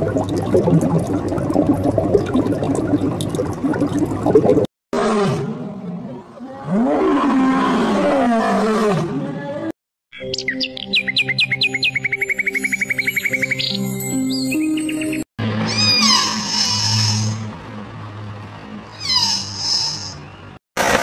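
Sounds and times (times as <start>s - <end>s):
water bubbling and gurgling: 0.0s - 4.7s
lion roaring: 5.0s - 9.4s.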